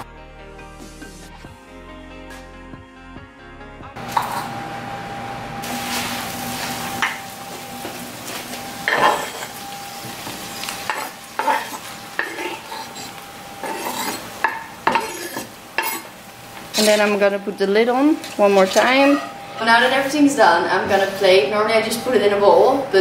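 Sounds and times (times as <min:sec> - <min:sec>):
food sizzling in a pot: 0:04.0 - 0:04.9, 0:05.6 - 0:20.0
knife scraping cutting board: 0:04.2 - 0:04.5, 0:10.9 - 0:16.1.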